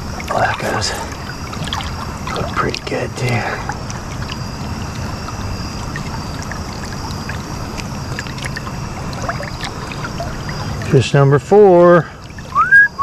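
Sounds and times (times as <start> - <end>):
creek water running: 0.0 - 13.0
small ticks and drips: 0.0 - 13.0.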